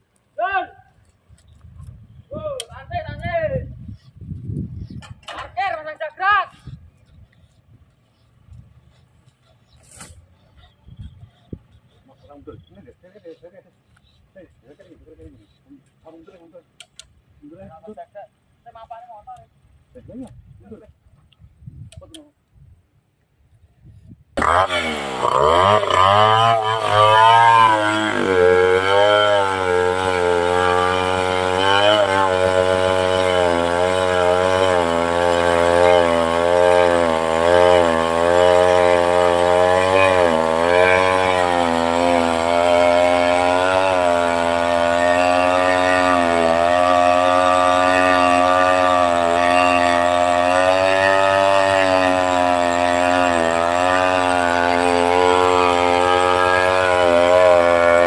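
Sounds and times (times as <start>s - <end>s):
chainsaw cutting: 24.4s - 58.0s.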